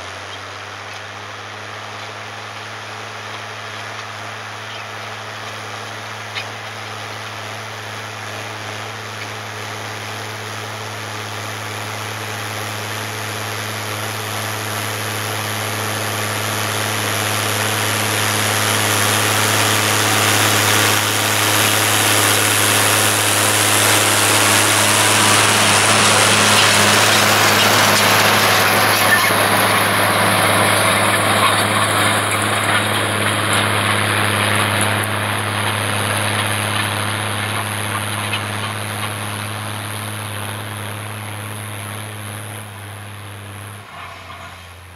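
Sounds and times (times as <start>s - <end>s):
tractor diesel engine running: 0.0s - 44.9s.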